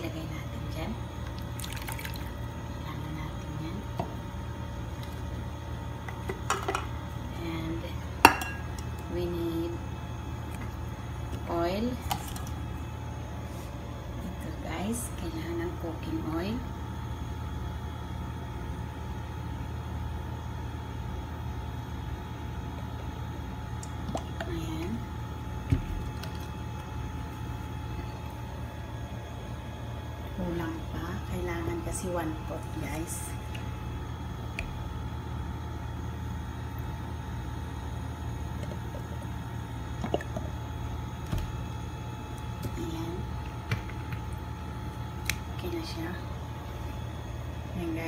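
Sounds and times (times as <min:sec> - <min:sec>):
steady low hum: 0:00.0 - 0:48.0
bottle knocking on cup: 0:08.2 - 0:08.6.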